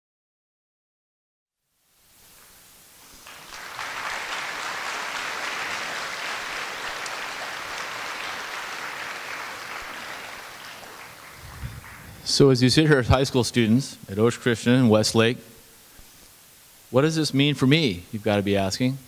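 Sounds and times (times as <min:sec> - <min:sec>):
audience applauding: 0:03.1 - 0:12.6.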